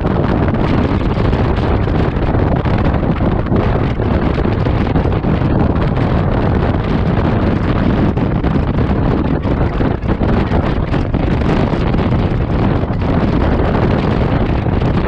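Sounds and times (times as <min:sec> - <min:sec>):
wind rush on microphone: 0:00.0 - 0:15.0.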